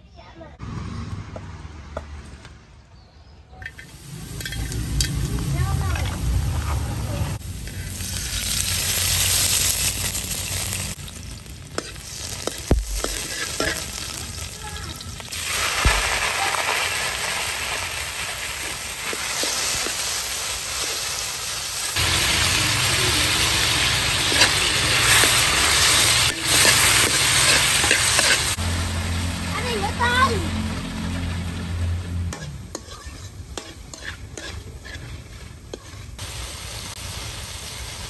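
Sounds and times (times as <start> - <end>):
food sizzling in hot oil: 3.6 - 38.0
metal spatula scraping a pan: 11.8 - 14.2, 24.2 - 28.6, 32.3 - 36.2.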